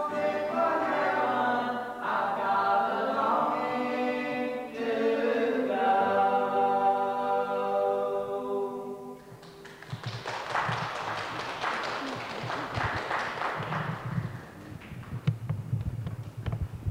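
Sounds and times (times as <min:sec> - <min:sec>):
audience applause: 0:09.3 - 0:15.0.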